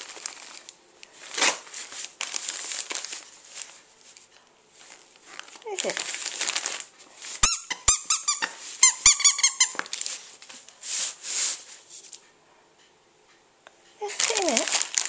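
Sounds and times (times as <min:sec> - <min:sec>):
wrapping paper rustling: 0:00.0 - 0:12.2, 0:14.0 - 0:15.0
squeaky dog toy squeaking: 0:07.4 - 0:10.0.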